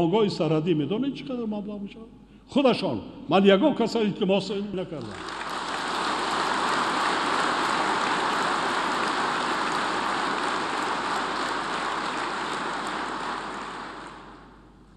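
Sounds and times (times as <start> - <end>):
large audience applauding: 5.0 - 14.6.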